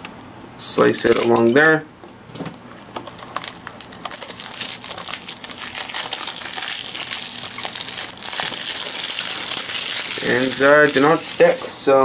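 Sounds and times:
plastic shrink wrap crinkling: 2.6s - 11.8s.

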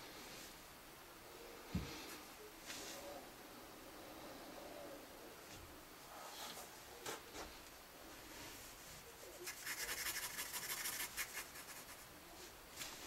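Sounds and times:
pencil scratching on paper: 9.3s - 12.0s.

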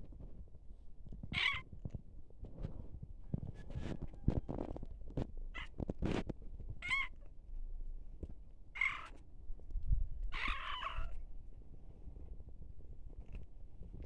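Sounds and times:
cat meowing: 1.4s - 1.7s, 6.8s - 7.2s, 10.3s - 11.2s.

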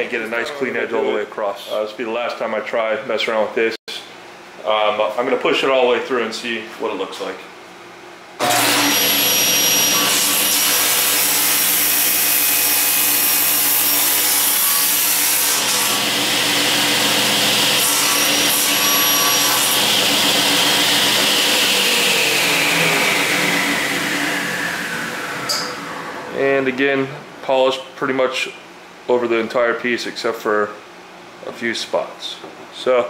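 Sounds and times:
table saw cutting aluminum: 8.4s - 26.3s.

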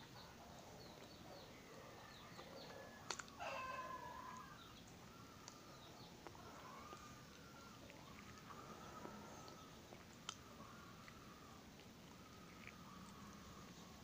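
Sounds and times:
long drawn-out bird call: 2.8s - 9.8s.

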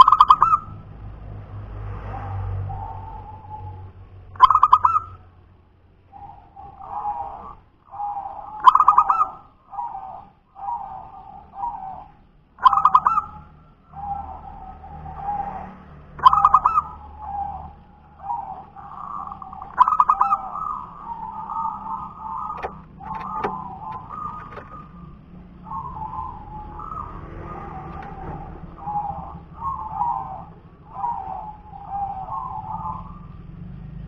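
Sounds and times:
dove stuttering call: 0.0s - 0.9s, 2.1s - 5.3s, 6.1s - 15.6s, 16.2s - 33.4s
dove soft low coos: 16.2s - 34.0s.

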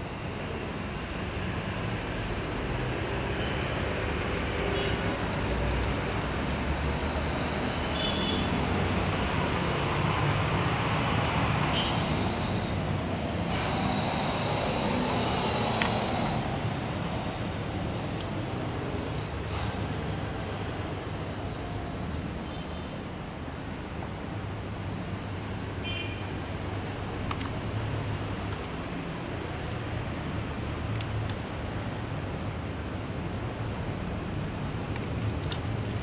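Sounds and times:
plastic toy pieces clicking: 5.3s - 6.5s, 34.9s - 35.7s.

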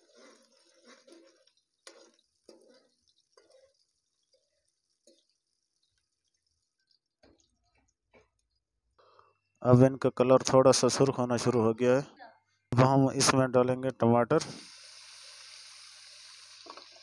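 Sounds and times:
onions frying in oil: 0.0s - 8.6s, 14.5s - 17.0s.

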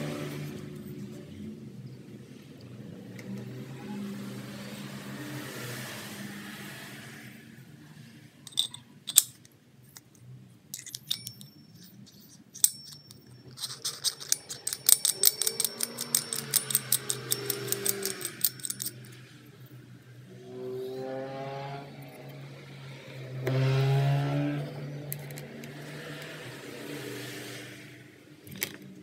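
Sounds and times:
small metallic clicks: 8.5s - 19.2s.

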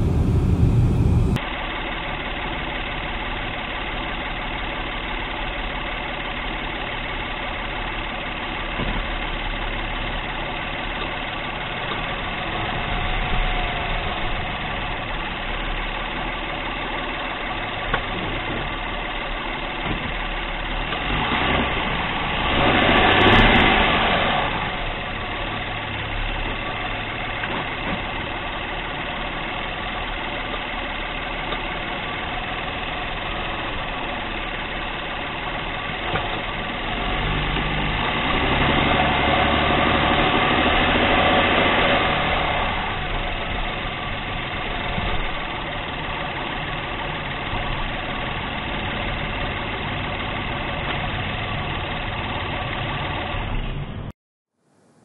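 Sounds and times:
broad noise: 0.0s - 1.4s
car engine and drivetrain hum: 0.0s - 54.1s.

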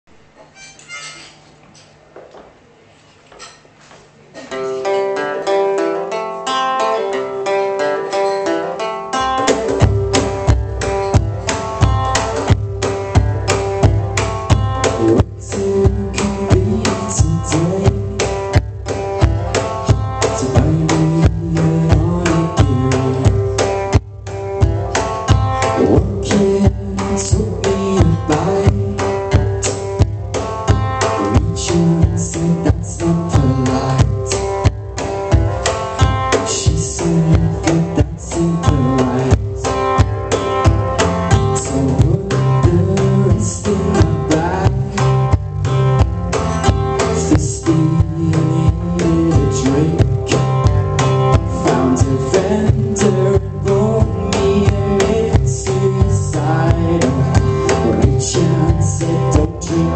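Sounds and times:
strummed acoustic guitar: 3.4s - 59.9s
cajon beat: 4.4s - 59.9s
man singing: 9.2s - 11.7s, 14.6s - 24.0s, 25.6s - 30.0s, 30.8s - 34.8s, 36.0s - 40.1s, 41.3s - 45.7s, 46.6s - 59.9s
electric bass: 9.2s - 59.9s.

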